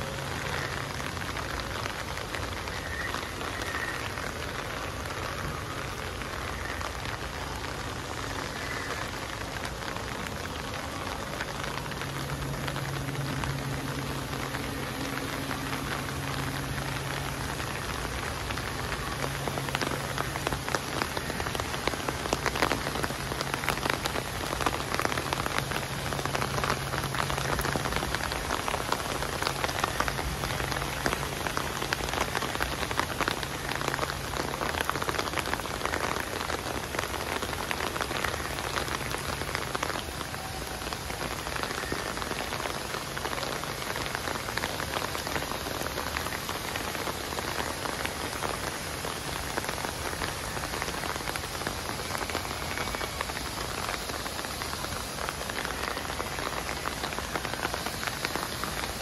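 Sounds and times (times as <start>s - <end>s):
rain on foliage and pavement: 0.0s - 59.0s
raindrops ticking: 0.0s - 59.0s.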